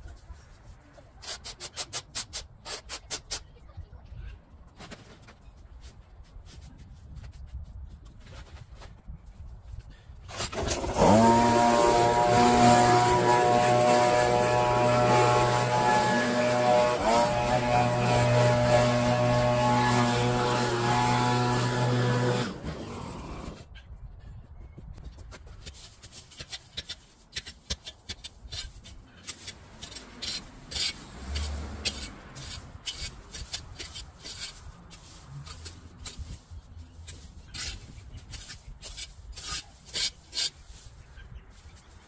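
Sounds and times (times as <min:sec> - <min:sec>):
irregular scraping: 0:04.8 - 0:23.6, 0:25.2 - 0:42.0
garden power tool motor running: 0:10.3 - 0:23.6.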